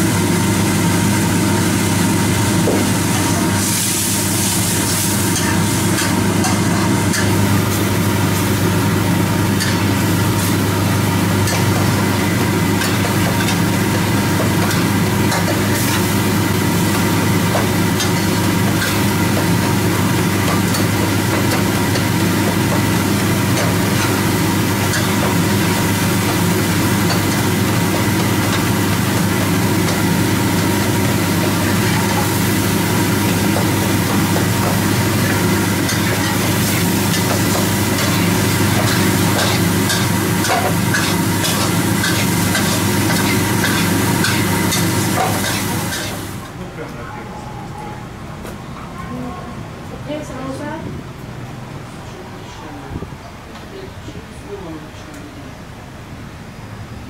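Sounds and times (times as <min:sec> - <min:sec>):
sauce simmering and sizzling: 0:03.6 - 0:46.4.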